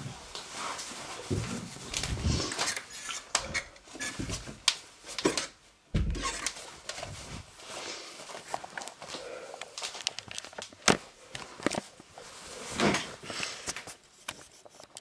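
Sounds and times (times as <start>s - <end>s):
rustling: 0.0s - 15.0s
low thumps: 5.9s - 6.4s.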